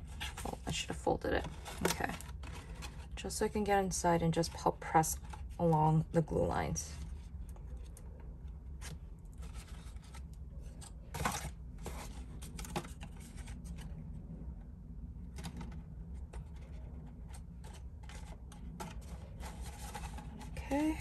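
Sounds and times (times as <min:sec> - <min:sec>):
paper rustles and scrapes: 0:00.0 - 0:05.6, 0:08.8 - 0:14.0, 0:16.2 - 0:21.0
steady low hum: 0:00.0 - 0:21.0.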